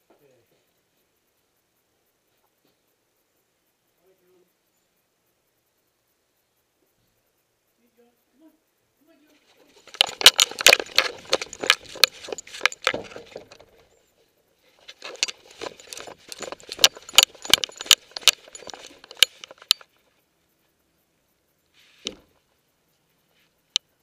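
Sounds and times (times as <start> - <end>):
harness jingling and rattling: 9.4 - 20.1.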